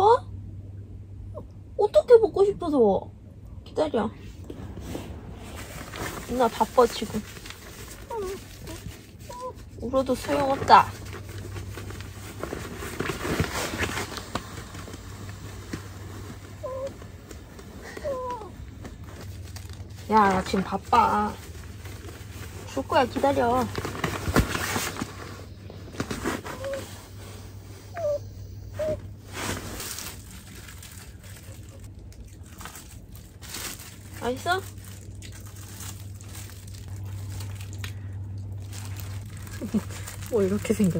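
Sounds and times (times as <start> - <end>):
bedding rustling: 4.2 - 37.7, 38.5 - 40.9
small dog whining: 7.9 - 9.8, 16.4 - 18.8, 26.2 - 29.2.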